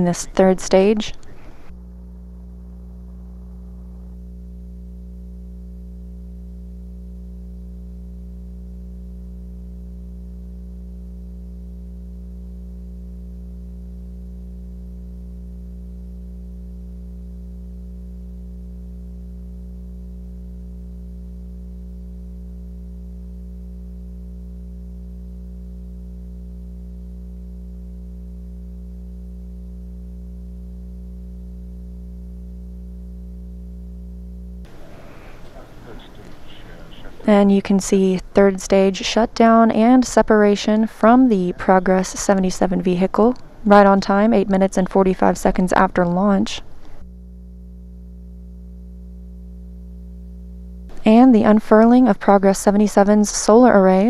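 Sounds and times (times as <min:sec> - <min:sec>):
electrical hum: 0:00.0 - 0:54.0
steady higher tones: 0:34.7 - 0:47.0.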